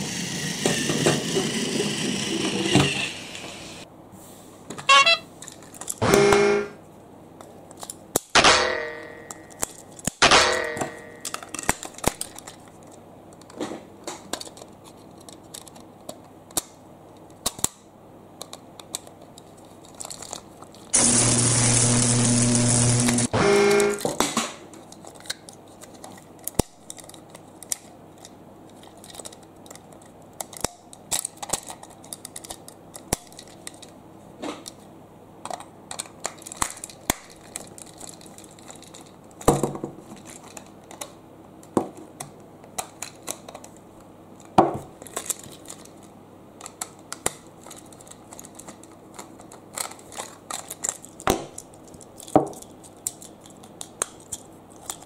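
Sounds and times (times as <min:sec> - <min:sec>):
plastic toy pieces clacking: 0:04.9 - 0:06.0, 0:09.2 - 0:10.2, 0:11.1 - 0:17.8, 0:18.4 - 0:20.9, 0:24.8 - 0:34.0, 0:35.4 - 0:41.2, 0:42.0 - 0:55.0.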